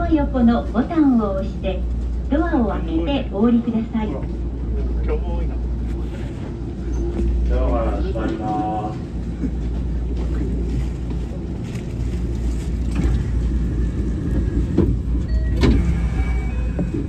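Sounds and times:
electric train humming: 0.0s - 17.0s.

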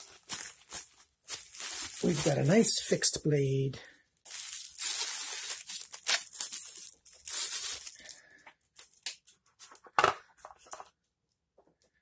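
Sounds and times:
plastic bag rustling and crinkling: 0.0s - 3.2s, 4.1s - 9.9s.

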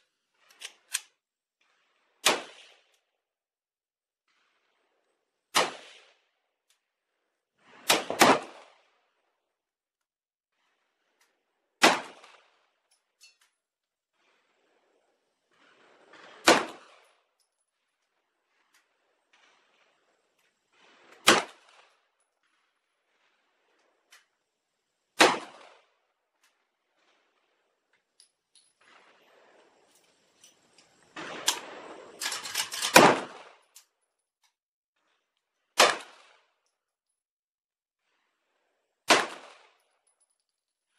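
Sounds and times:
pistol shots: 7.9s - 8.6s, 11.8s - 12.4s, 16.4s - 16.9s, 25.2s - 25.8s, 31.2s - 33.6s, 35.8s - 36.4s, 39.1s - 39.6s
pistol shots with echo: 25.2s - 25.7s, 39.1s - 39.6s
rattling crackling noise: 28.8s - 33.2s.

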